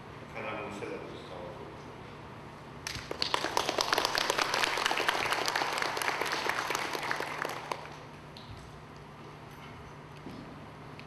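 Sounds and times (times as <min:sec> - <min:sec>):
audience applauding: 0:02.9 - 0:08.0.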